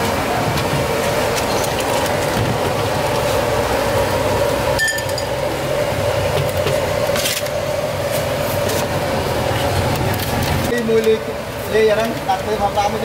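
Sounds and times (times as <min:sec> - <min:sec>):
steady hum: 0:00.0 - 0:13.0
bowls clinking against metal pot: 0:04.8 - 0:05.3.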